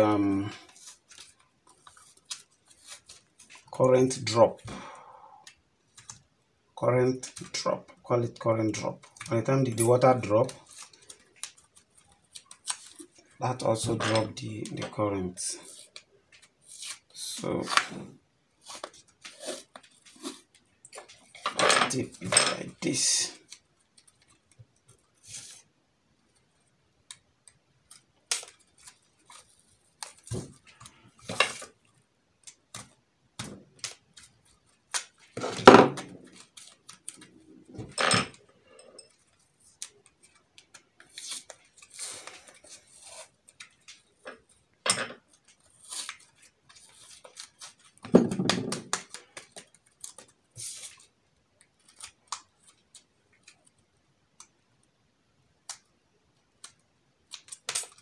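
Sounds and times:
tape crackling and rustling: 0:00.0 - 0:03.7, 0:08.7 - 0:14.8, 0:15.5 - 0:25.7, 0:26.3 - 0:54.6, 0:55.6 - 0:58.0
knocks on a tabletop: 0:48.1 - 0:48.8.

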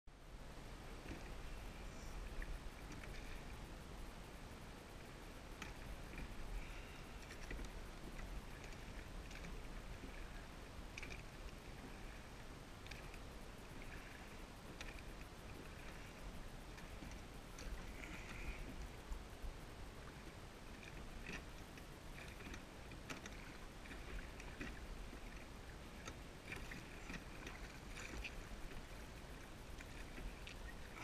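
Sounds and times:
wind rumble on microphone: 0:00.1 - 0:31.0
oar blades splashing softly: 0:00.8 - 0:03.8, 0:05.0 - 0:19.2, 0:20.0 - 0:31.0
oars clicking in oarlocks: 0:01.0 - 0:03.7, 0:05.5 - 0:19.2, 0:20.0 - 0:31.0.

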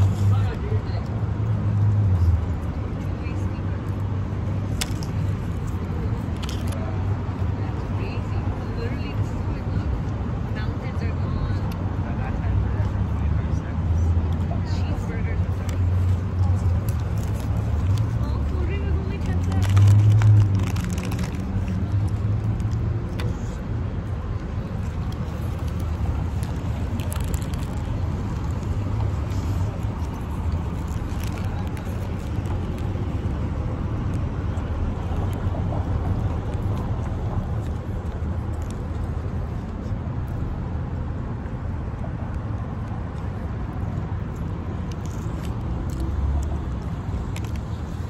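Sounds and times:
road traffic rumble: 0:00.0 - 0:48.0
paper wrapper rustling: 0:19.1 - 0:23.2, 0:24.8 - 0:33.0.

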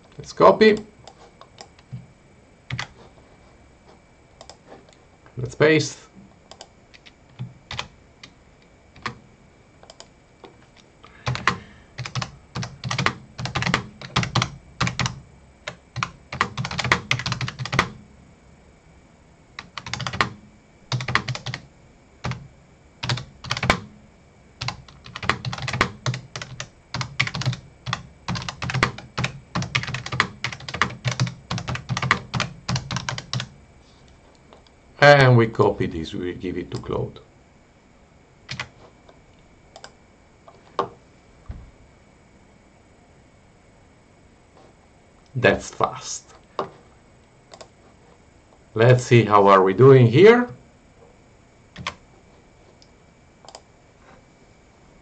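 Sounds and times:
typing on computer keyboard: 0:09.0 - 0:09.2, 0:11.2 - 0:18.0, 0:19.6 - 0:21.6, 0:23.0 - 0:23.8, 0:24.6 - 0:33.5, 0:38.5 - 0:38.7, 0:51.8 - 0:52.0.

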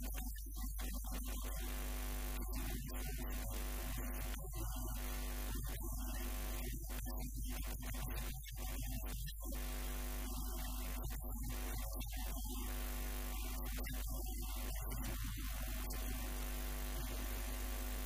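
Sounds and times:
constant hiss: 0:00.9 - 0:18.0
electrical mains hum: 0:01.4 - 0:06.9, 0:09.5 - 0:18.0.

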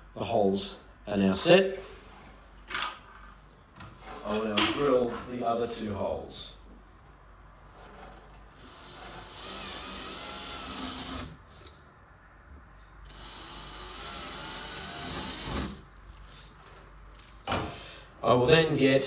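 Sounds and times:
cordless drill boring plasterboard: 0:08.4 - 0:11.4, 0:13.1 - 0:15.8.

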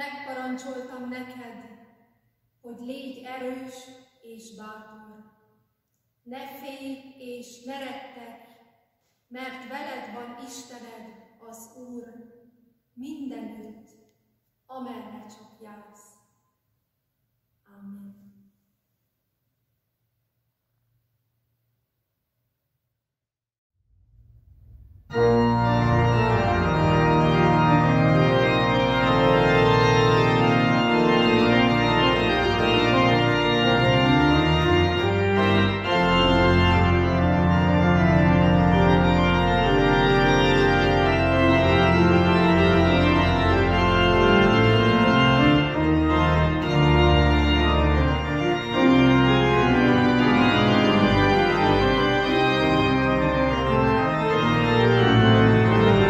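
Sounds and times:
church pipe organ chords: 0:24.5 - 0:56.0.

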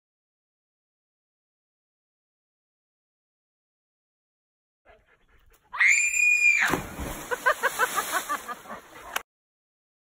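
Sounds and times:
girl screaming: 0:05.8 - 0:06.9
splash into lake: 0:06.2 - 0:09.1.

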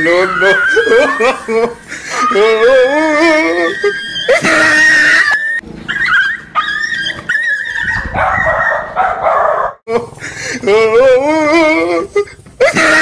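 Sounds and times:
dog barking and yelping: 0:02.0 - 0:02.9, 0:03.8 - 0:09.8.

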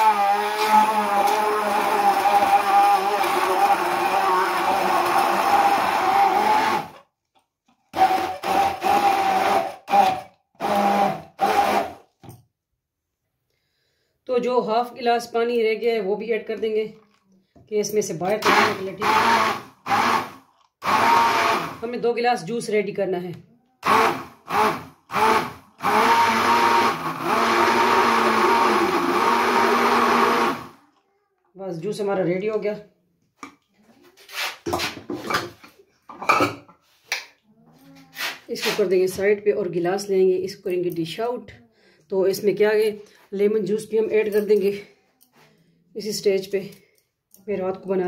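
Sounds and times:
stick blender motor whining: 0:00.0 - 0:07.1, 0:07.9 - 0:12.1, 0:18.3 - 0:21.8, 0:23.8 - 0:30.8.

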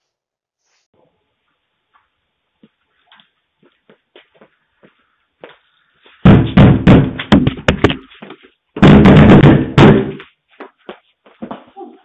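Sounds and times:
heavy banging on front door: 0:06.2 - 0:08.1, 0:08.8 - 0:10.2.

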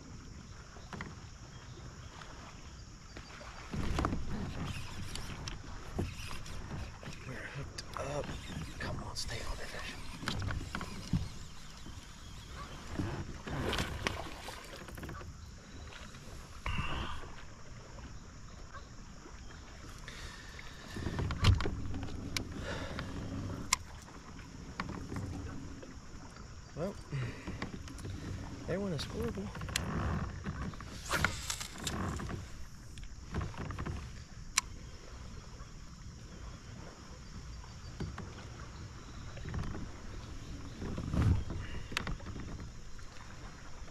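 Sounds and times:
kayak knocks and rumble: 0:00.0 - 0:43.9
water splashing and lapping: 0:00.0 - 0:43.9
low wind rumble on microphone: 0:37.9 - 0:42.7.

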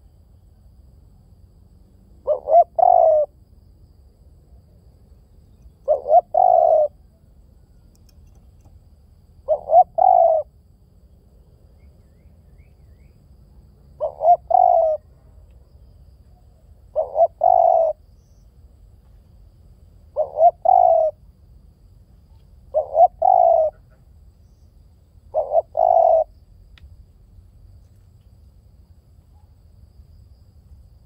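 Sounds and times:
dove cooing: 0:02.2 - 0:03.3, 0:05.8 - 0:07.1, 0:09.4 - 0:10.5, 0:14.0 - 0:15.1, 0:16.9 - 0:18.0, 0:20.1 - 0:21.2, 0:22.7 - 0:24.0, 0:25.3 - 0:26.3.

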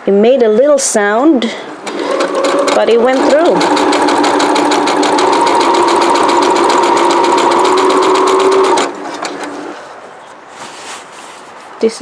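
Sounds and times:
sewing machine stitching: 0:01.8 - 0:09.7.

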